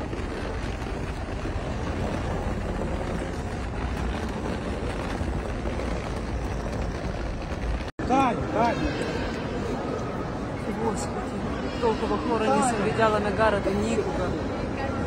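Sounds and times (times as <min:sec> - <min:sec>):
wind on microphone: 0:00.0 - 0:07.9
street traffic: 0:00.0 - 0:15.0.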